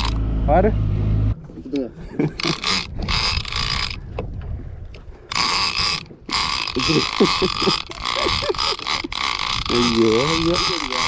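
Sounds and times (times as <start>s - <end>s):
fishing reel gears whirring: 0.0s - 0.2s, 2.4s - 4.0s, 5.3s - 11.0s.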